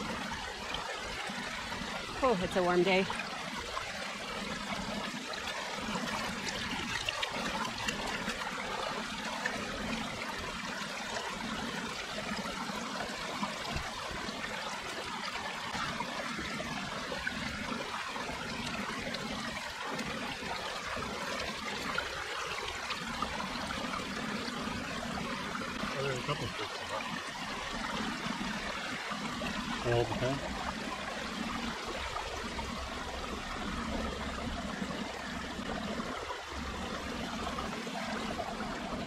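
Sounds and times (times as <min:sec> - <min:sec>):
water sloshing in a pan: 0:00.0 - 0:28.4
creek trickling over rocks: 0:00.0 - 0:39.0.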